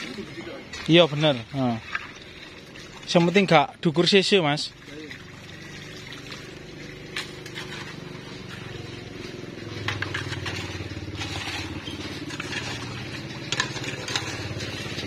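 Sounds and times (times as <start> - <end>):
hoes scraping sludge: 0.0 - 15.0
engine hum: 4.6 - 15.0.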